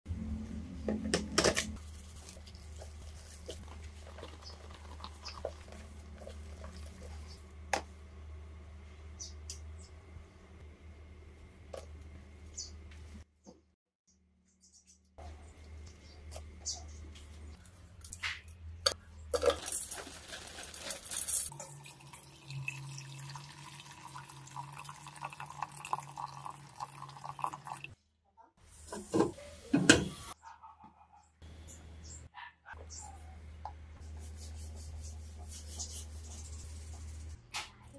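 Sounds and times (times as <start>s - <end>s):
water pouring into pot: 19.4s - 27.9s.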